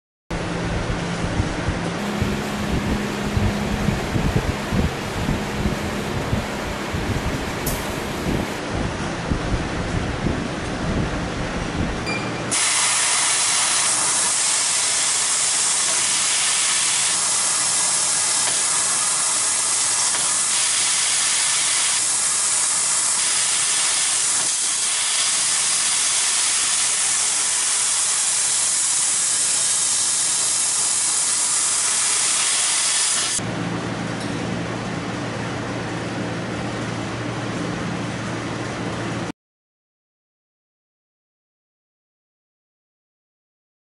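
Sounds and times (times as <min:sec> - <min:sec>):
low machine hum: 0:00.3 - 0:12.6
gas jet hissing: 0:12.5 - 0:33.4.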